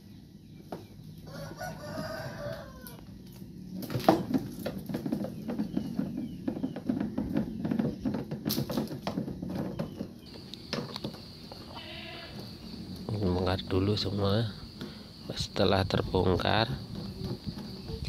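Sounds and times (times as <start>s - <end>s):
rooster crowing: 1.2s - 3.1s.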